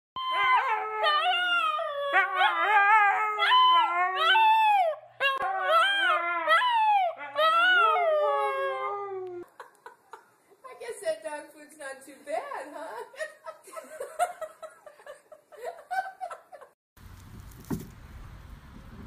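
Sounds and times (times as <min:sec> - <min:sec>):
puppy howling: 0:00.2 - 0:09.4.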